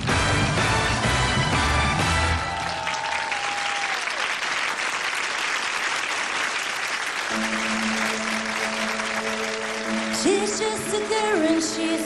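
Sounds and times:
song backing music: 0.0 - 2.8, 7.3 - 12.0
studio audience applauding: 0.0 - 12.0.

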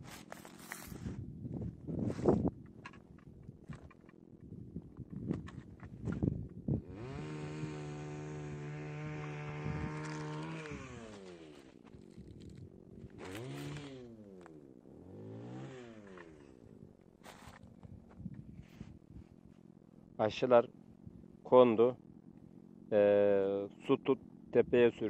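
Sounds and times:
chainsaw engine revving: 6.8 - 17.8.

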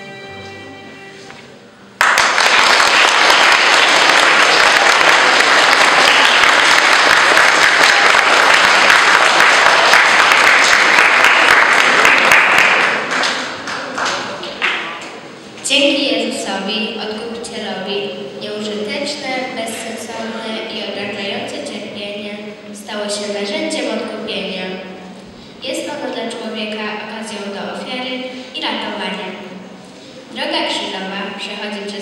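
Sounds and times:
violin duet: 0.0 - 1.6
audience applause: 2.0 - 15.0.

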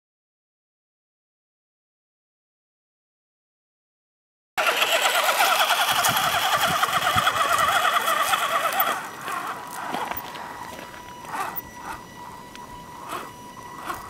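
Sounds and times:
electric motor and gearbox whining: 4.6 - 14.0.

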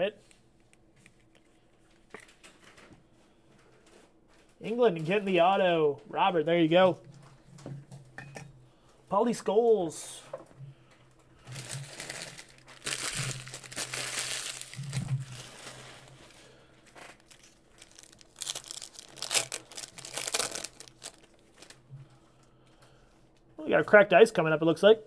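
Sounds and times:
foil wrapper crinkling and tearing: 11.4 - 21.8.

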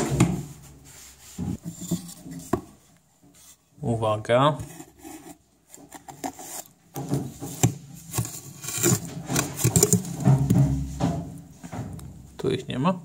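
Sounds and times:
hand tool scraping compost: 7.3 - 11.0.

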